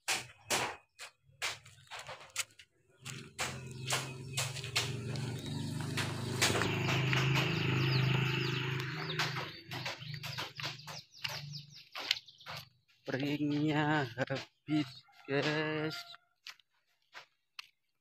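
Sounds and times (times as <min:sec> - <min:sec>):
small birds chirping: 0:00.2 - 0:18.0
footsteps on dry grass and gravel: 0:01.6 - 0:18.0.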